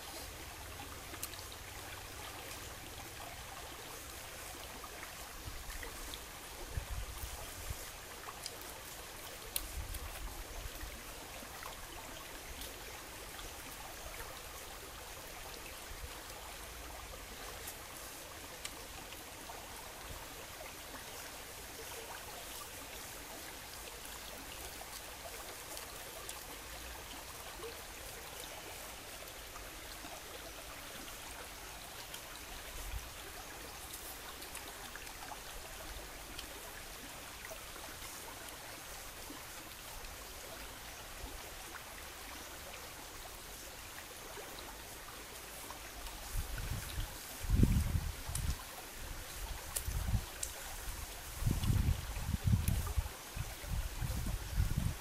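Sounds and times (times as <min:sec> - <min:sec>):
stream running over rocks: 0:00.0 - 0:55.0
faint clicks: 0:01.1 - 0:01.5, 0:18.6 - 0:19.3, 0:48.3 - 0:48.6, 0:49.6 - 0:50.6.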